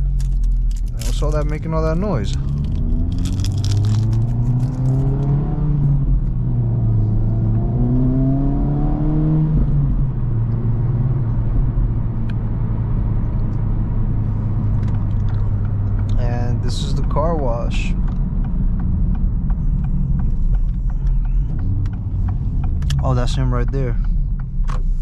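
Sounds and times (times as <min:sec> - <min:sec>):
car cruising drone: 0:00.0 - 0:25.0
car engine accelerating: 0:00.0 - 0:25.0.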